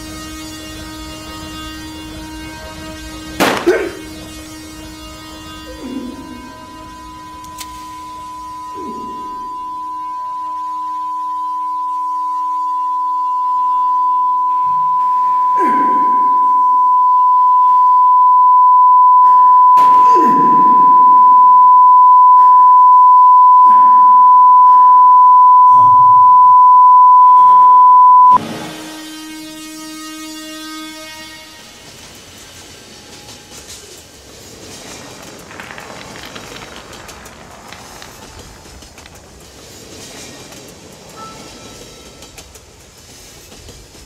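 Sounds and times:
high-pitched sine tone: 0.0 - 33.9
broad rumbling noise: 34.0 - 41.1.

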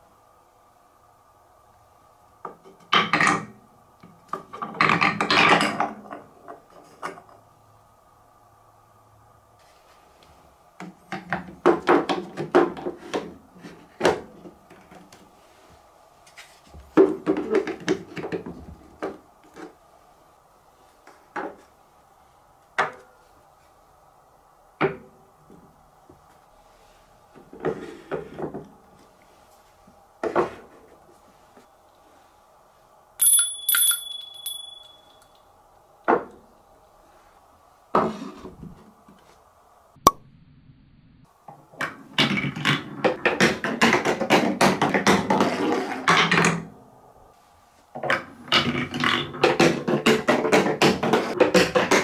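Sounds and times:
high metallic ring: 33.2 - 35.5.

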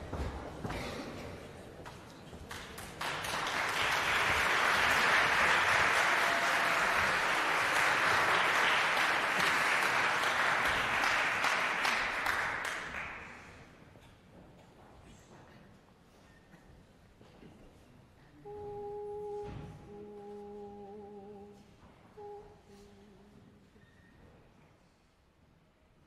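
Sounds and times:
audience applauding: 2.5 - 13.6.

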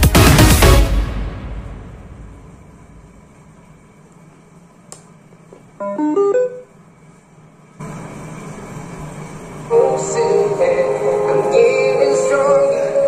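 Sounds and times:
music through speakers: 0.0 - 2.3, 9.8 - 13.0
click: 4.9 - 5.1
speaker hiss: 7.8 - 13.0.

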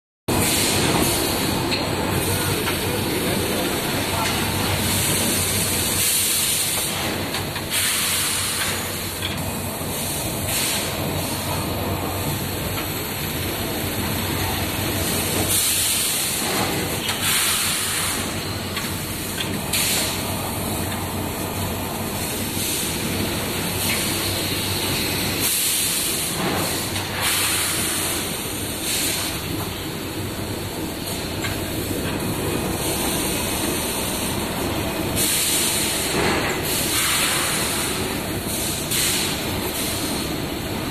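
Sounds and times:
steady machine hum: 0.3 - 40.9
compressed air hisses: 7.7 - 9.1, 9.9 - 11.3, 35.2 - 40.2.

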